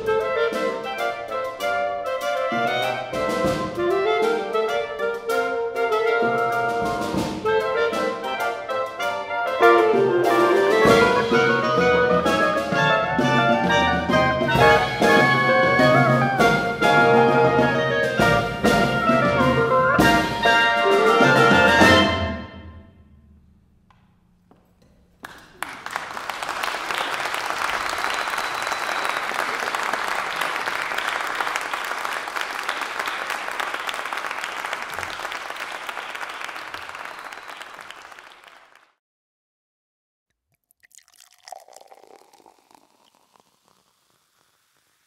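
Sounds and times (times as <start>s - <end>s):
audience applause: 25.2s - 39.0s.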